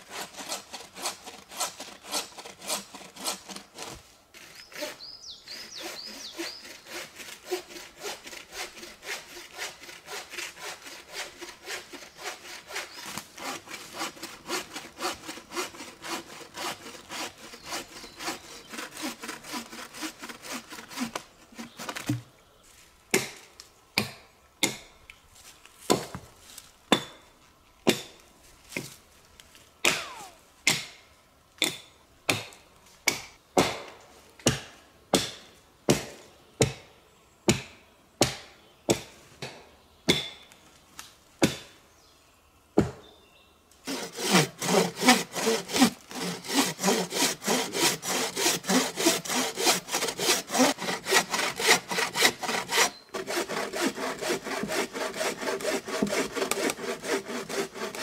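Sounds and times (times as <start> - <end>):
bow saw cutting log: 0.0 - 22.2, 43.8 - 58.0
axe chopping log: 31.6 - 36.8, 41.4 - 41.7.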